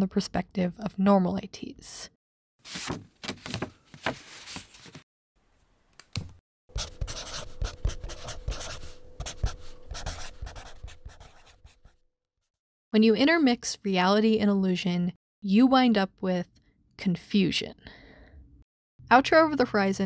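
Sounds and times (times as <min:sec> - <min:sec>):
pen scratching on paper: 0:06.7 - 0:12.0.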